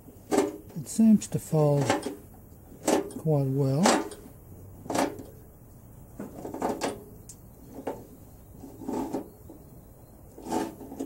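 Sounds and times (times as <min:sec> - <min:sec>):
sheet metal creaking and clicking: 0:01.7 - 0:02.2, 0:02.8 - 0:05.4, 0:06.2 - 0:07.1.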